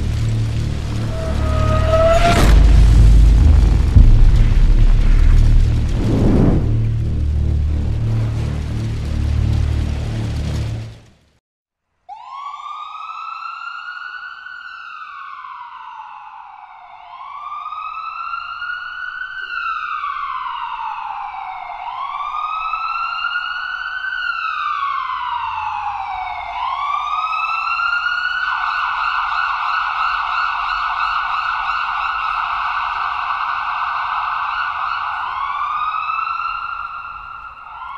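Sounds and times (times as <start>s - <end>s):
fire truck siren: 0.0s - 5.7s, 12.1s - 37.9s.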